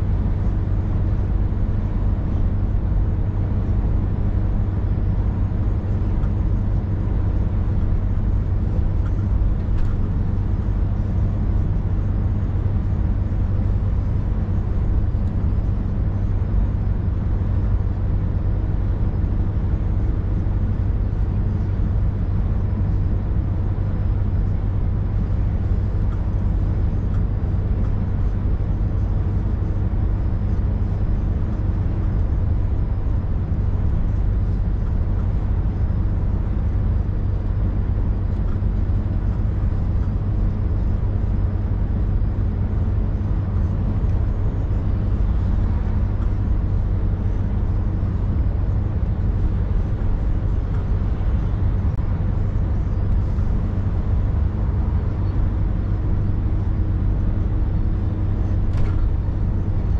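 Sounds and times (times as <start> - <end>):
diesel truck engine drone: 0.0 - 59.9
road noise: 0.0 - 59.9.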